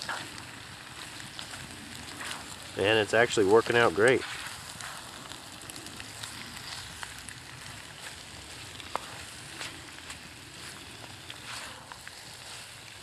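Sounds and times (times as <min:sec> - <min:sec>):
food sizzling in a frying pan: 0:00.0 - 0:13.0
spatula scraping a pan: 0:02.2 - 0:02.5, 0:04.2 - 0:05.0, 0:11.4 - 0:11.8.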